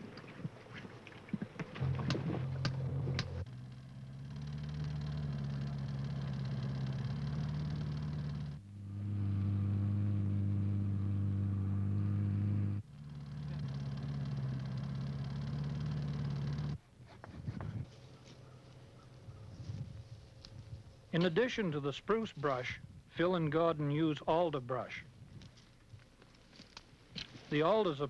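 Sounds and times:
outboard motor running: 0:00.0 - 0:16.8
small gasoline engines running: 0:01.8 - 0:16.8.

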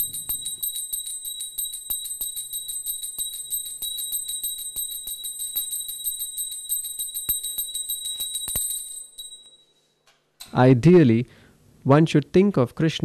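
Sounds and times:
hand bell ringing rapidly: 0:00.0 - 0:09.7.

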